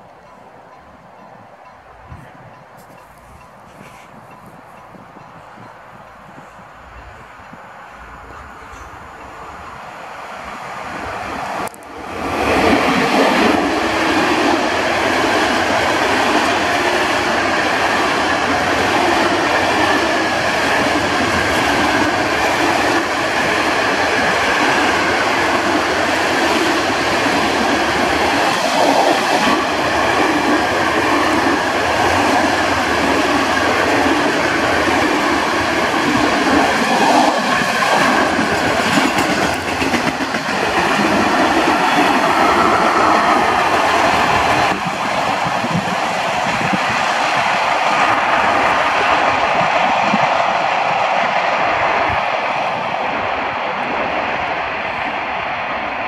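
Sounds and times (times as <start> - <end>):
freight train wheels clattering: 12.5 - 47.6.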